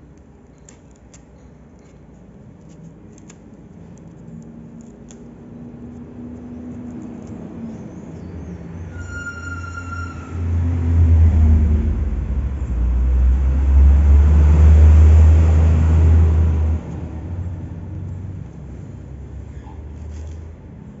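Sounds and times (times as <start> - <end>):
passing motor vehicle rumble: 4.5 - 21.0.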